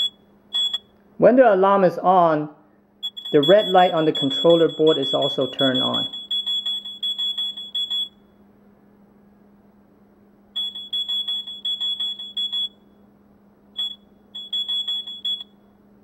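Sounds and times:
electronic alarm buzzer beeping: 0:00.0 - 0:00.9, 0:03.0 - 0:08.3, 0:10.6 - 0:13.0, 0:13.7 - 0:15.7.

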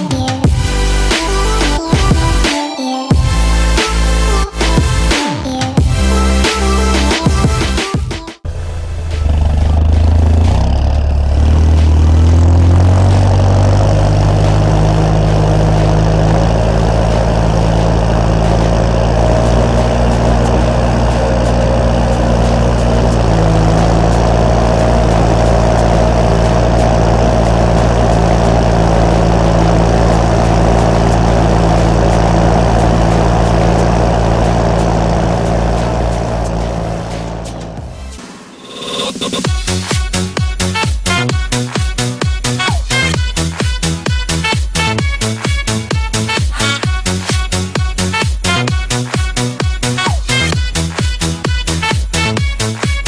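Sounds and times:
tractor diesel engine running: 0:00.5 - 0:02.5, 0:08.4 - 0:39.4.

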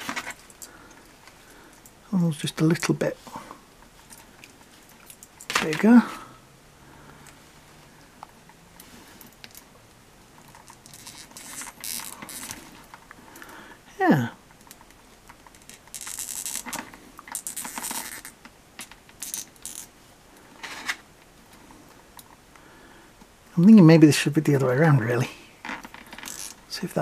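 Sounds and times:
plastic parts scraping and clicking: 0:00.0 - 0:02.0, 0:10.4 - 0:13.5, 0:14.5 - 0:19.9.

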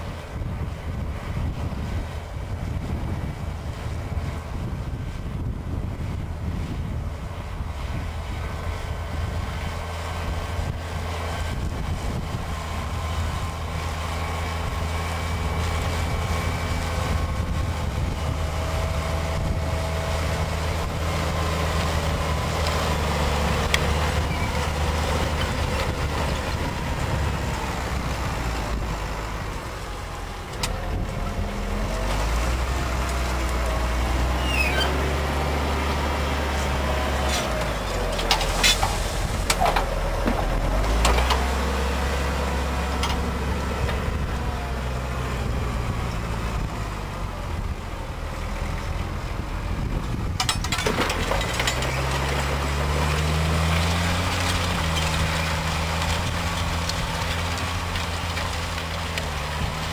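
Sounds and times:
tractor diesel engine running: 0:00.0 - 0:59.9
sharp clicks and knocks: 0:50.4 - 0:52.6.

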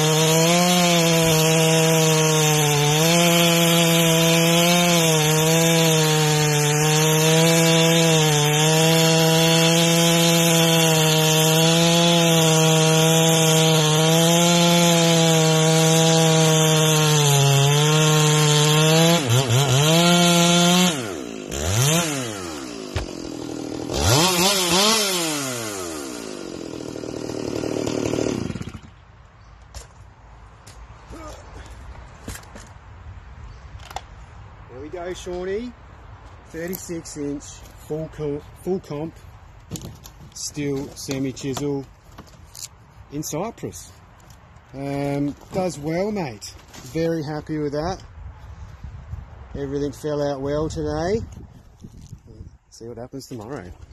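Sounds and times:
chainsaw cutting wood: 0:00.0 - 0:29.0, 0:36.6 - 0:48.1.

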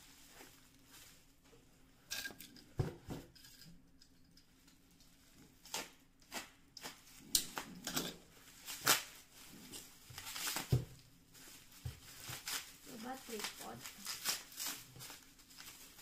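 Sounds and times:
plastic packaging crinkling: 0:06.9 - 0:16.0.

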